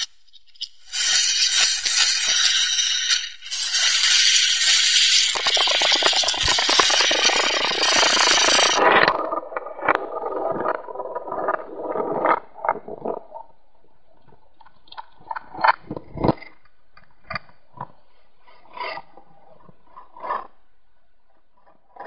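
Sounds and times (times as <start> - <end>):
poker chips rattling: 0.9 - 8.8.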